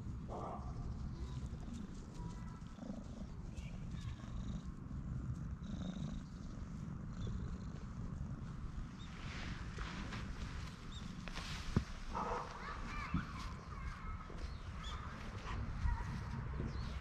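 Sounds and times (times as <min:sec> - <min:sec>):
cat purring loudly: 0:00.9 - 0:11.4.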